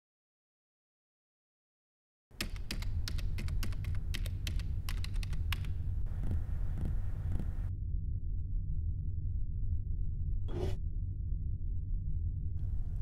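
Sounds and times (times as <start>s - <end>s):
keyboard key clicks: 2.4s - 5.7s
steady low hum: 2.8s - 13.0s.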